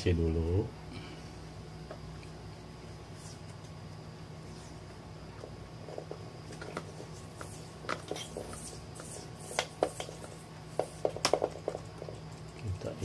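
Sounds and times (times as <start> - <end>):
low steady hum: 0.0 - 13.0
tape crackling and ticking: 4.8 - 13.0.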